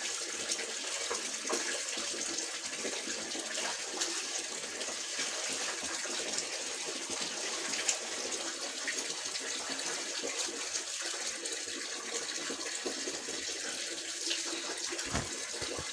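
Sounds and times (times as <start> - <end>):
water running from a tap: 0.0 - 15.9.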